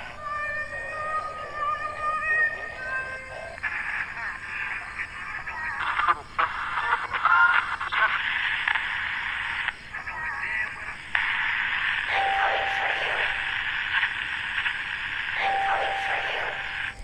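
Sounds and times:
radio static hiss: 0.0 - 0.2, 2.5 - 17.0
garbled radio voice: 2.5 - 8.9, 9.9 - 11.5, 12.1 - 14.1, 15.3 - 17.0
steady radio whistle: 5.8 - 17.0.

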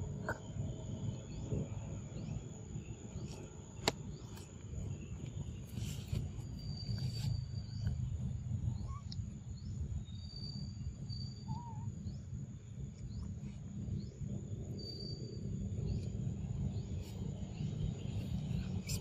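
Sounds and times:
bird chirps: 5.8 - 12.4.

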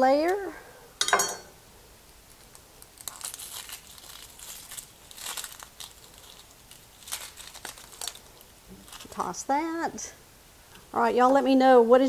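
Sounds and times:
onion skin crinkling: 2.0 - 9.6.

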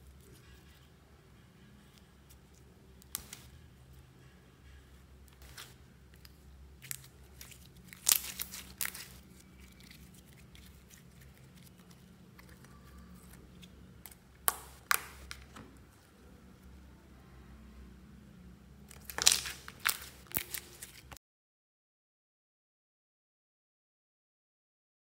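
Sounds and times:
slime sticky crackles and pops: 3.0 - 3.5, 5.3 - 15.5, 18.9 - 21.1.

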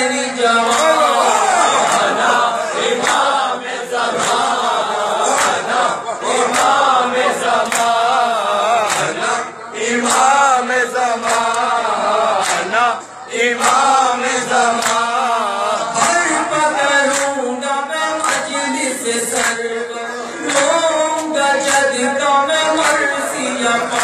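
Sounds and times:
men chanting a lament: 0.0 - 24.0.

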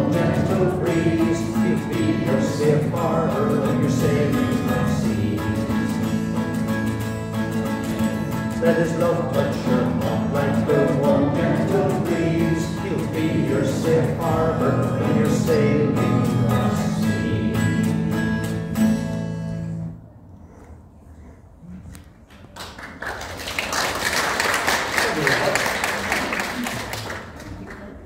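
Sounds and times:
man singing: 0.0 - 6.3, 8.0 - 18.2
acoustic guitar strumming: 0.0 - 20.0
applause: 22.3 - 28.0.

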